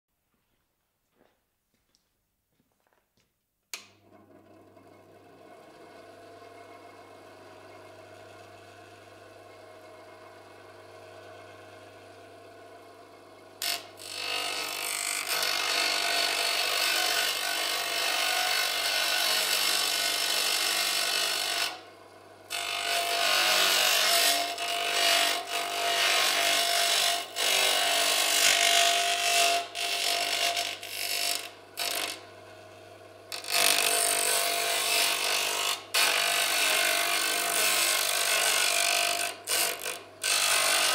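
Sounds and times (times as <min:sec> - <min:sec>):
bench grinder motor humming: 0:03.8 - 0:40.9
metal grinding on wheel: 0:22.5 - 0:32.2, 0:33.3 - 0:40.9.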